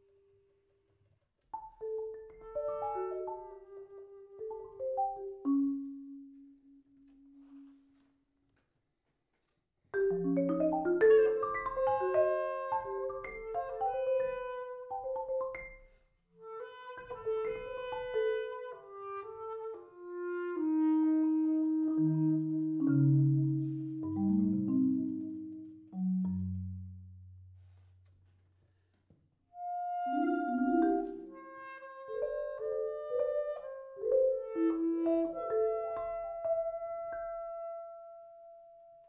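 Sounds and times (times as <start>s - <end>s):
marimba notes: 1.6s - 3.8s, 4.4s - 6.8s, 10.0s - 15.9s, 22.6s - 26.9s, 29.9s - 31.6s
bass clarinet: 2.3s - 5.9s, 6.9s - 8.1s, 10.2s - 15.6s, 16.4s - 27.0s, 29.5s - 38.8s.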